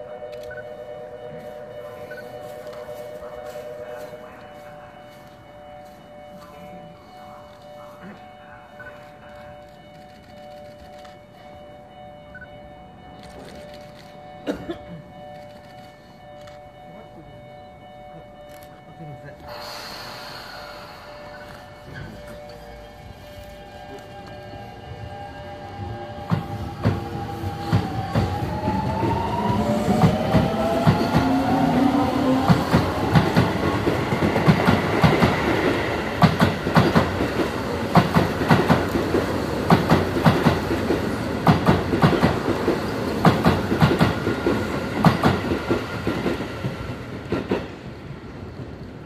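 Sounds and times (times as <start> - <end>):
electric train motors whining: 0.0 - 49.0
train wheels clattering over rail joints: 26.2 - 47.8.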